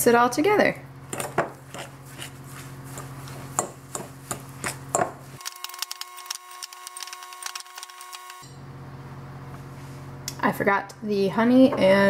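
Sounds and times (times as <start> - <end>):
fork scraping glass bowl: 1.7 - 2.6.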